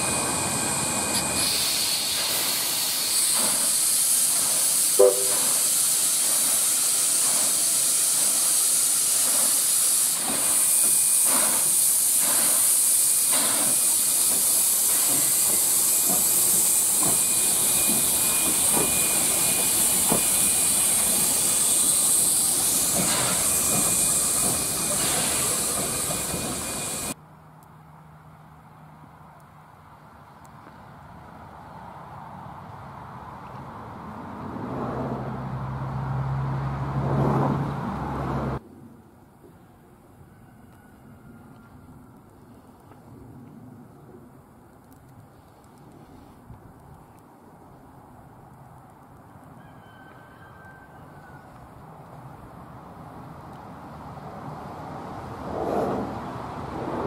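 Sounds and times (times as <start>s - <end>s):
steam hissing: 0.0s - 27.2s
locomotive exhaust beats: 3.3s - 27.2s
locomotive whistle toot: 4.9s - 5.8s.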